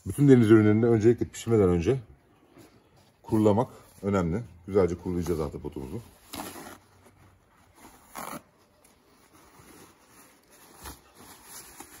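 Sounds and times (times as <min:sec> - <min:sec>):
paper rustling: 0:05.1 - 0:12.0
paper towel tearing: 0:08.0 - 0:08.8.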